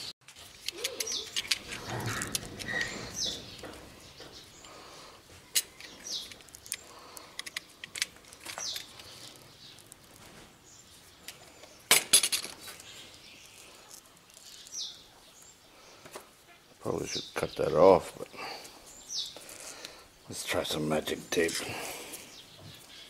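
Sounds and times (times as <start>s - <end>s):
bird chirping: 0.0s - 11.9s, 12.6s - 23.0s
tools clicking and clinking: 0.3s - 3.8s, 5.5s - 9.0s.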